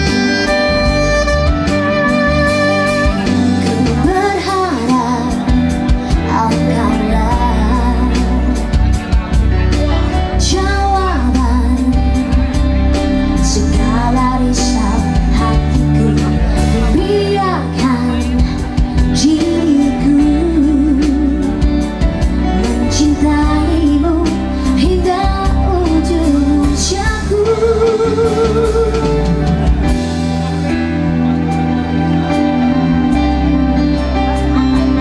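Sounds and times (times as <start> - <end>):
live band playing: 0.0 - 35.0
woman singing pop ballad: 3.0 - 29.9.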